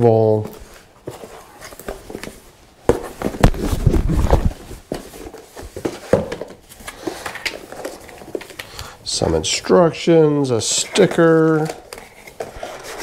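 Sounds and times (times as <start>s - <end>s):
cardboard box rustling: 0.6s - 8.6s.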